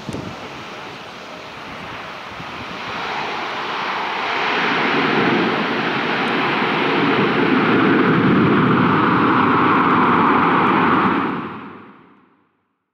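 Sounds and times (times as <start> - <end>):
turboprop engines running: 0.0 - 12.2.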